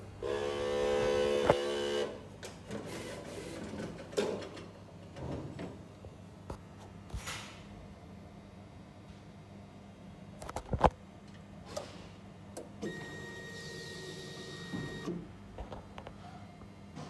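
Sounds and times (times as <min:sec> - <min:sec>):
printer carriage motor humming: 0:00.0 - 0:03.8, 0:12.6 - 0:15.7.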